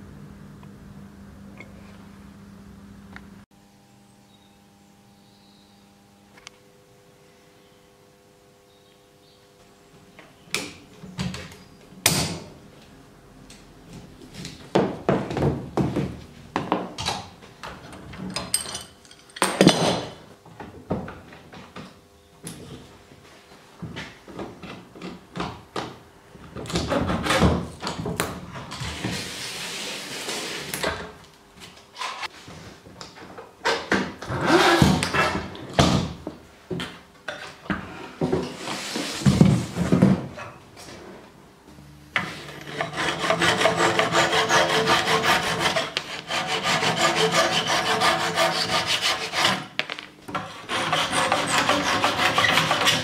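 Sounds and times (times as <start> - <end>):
scraping on wood: 42.2 - 49.7, 50.3 - 53.0.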